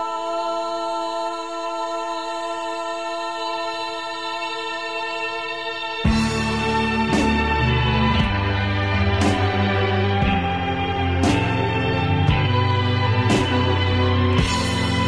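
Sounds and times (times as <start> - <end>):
background music held chord: 0.0 - 15.0
low music notes: 6.1 - 15.0.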